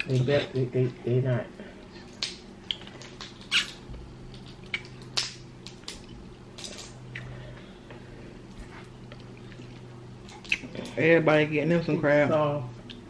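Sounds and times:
low steady hum: 0.0s - 13.0s
seafood shells cracking: 2.1s - 7.0s.

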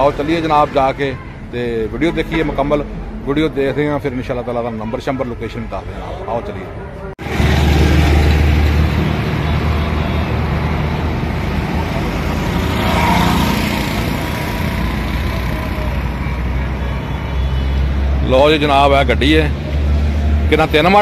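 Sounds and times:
traffic rumble: 0.0s - 21.0s
vehicle passing: 6.6s - 21.0s.

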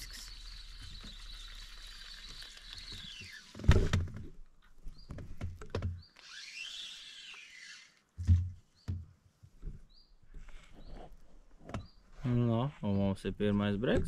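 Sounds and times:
fishing reel gear whine: 6.2s - 8.0s.

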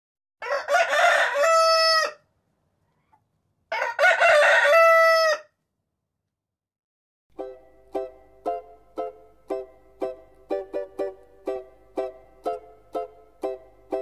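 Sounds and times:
rooster crowing: 0.4s - 2.2s, 3.7s - 5.6s.

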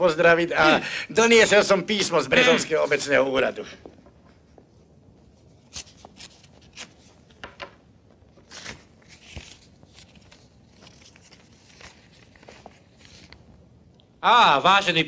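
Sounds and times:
paper rustling: 5.5s - 13.4s.

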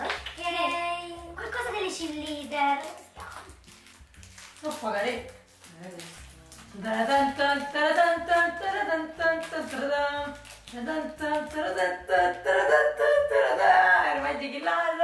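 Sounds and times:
person singing: 6.7s - 15.0s.

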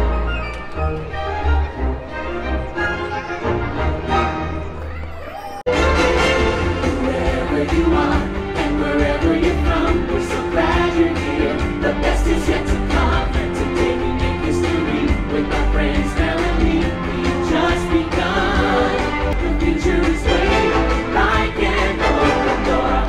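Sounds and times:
person singing: 6.6s - 23.0s.

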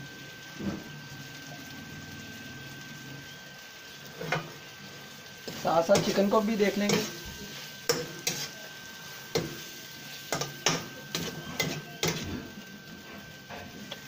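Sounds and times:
chicken sizzling in a wok: 0.0s - 14.0s
metal utensil scraping a pan: 5.5s - 8.6s, 10.3s - 14.0s.

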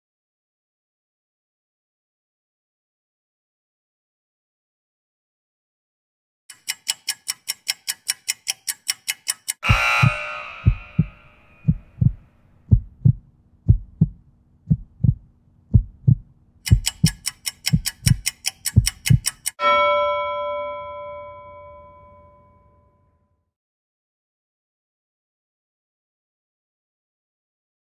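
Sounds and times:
rapid timer ticking: 6.5s - 19.6s
low steady hum: 9.6s - 17.2s
heartbeat-like double thump: 9.7s - 18.2s.

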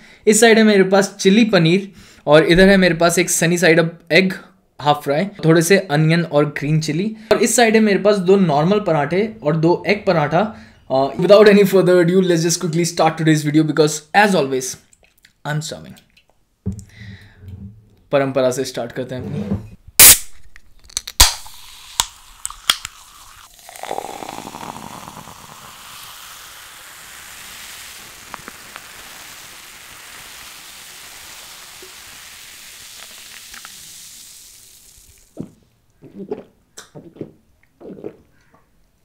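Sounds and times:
person gulping drink: 14.9s - 15.4s, 20.9s - 29.3s, 31.3s - 38.8s
can snapping open: 20.0s - 23.4s, 33.0s - 34.3s
cola pouring and fizzing: 21.3s - 38.3s.

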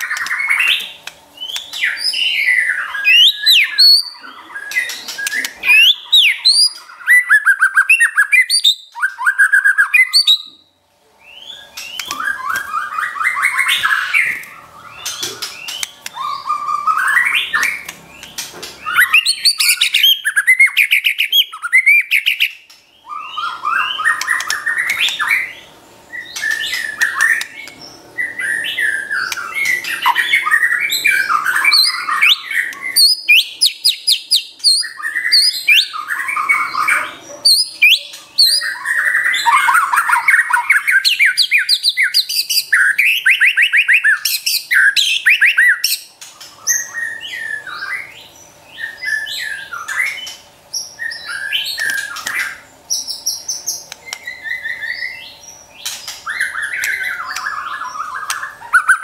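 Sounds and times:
songbird singing varied song: 0.0s - 10.6s, 11.2s - 46.0s, 46.7s - 59.0s.

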